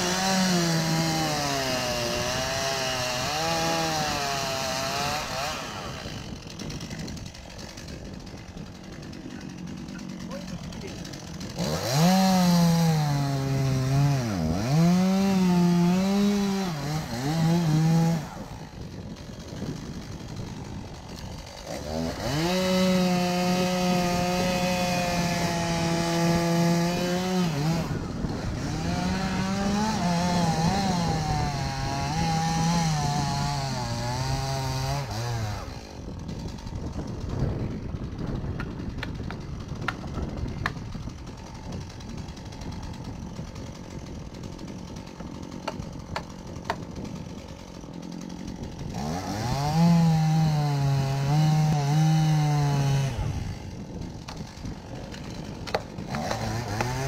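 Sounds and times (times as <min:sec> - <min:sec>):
chainsaw cutting wood: 0:00.0 - 0:57.0
sharp clicks and knocks: 0:55.1 - 0:57.0.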